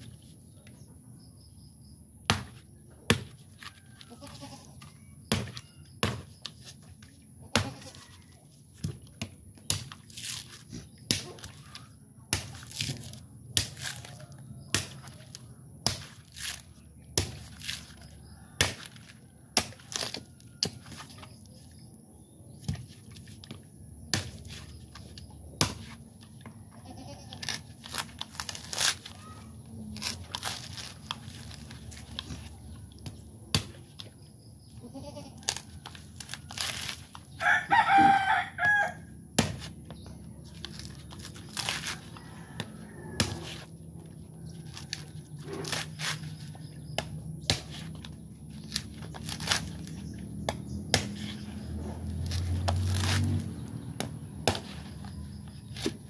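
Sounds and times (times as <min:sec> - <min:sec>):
knife striking coconut: 0:02.3 - 0:03.6, 0:05.2 - 0:06.5, 0:07.5 - 0:08.0, 0:08.8 - 0:21.0, 0:24.1 - 0:24.6, 0:25.6 - 0:26.0, 0:33.0 - 0:34.0, 0:39.4 - 0:39.8, 0:42.6 - 0:43.7, 0:44.8 - 0:48.1, 0:48.7 - 0:56.0.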